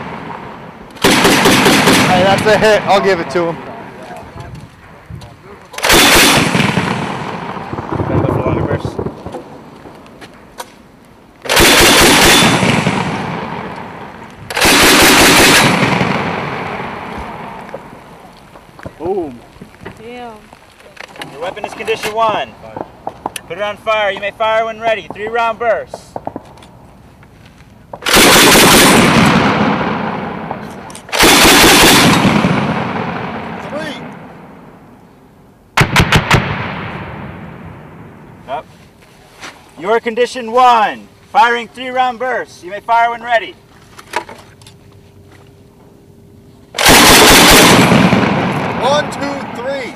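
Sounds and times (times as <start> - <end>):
long rolling echo: 0.0 - 19.6, 27.9 - 38.5, 46.0 - 49.9
grenade launcher bursts: 1.0 - 3.2, 5.8 - 9.2, 11.5 - 13.7, 14.5 - 17.0, 28.0 - 34.1, 35.8 - 37.5, 46.8 - 49.9.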